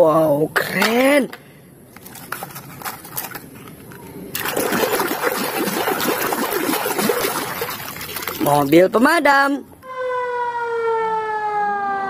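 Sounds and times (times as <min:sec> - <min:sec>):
plastic toys clicking and rattling: 0:01.9 - 0:04.0
water splashing and churning: 0:04.3 - 0:09.0.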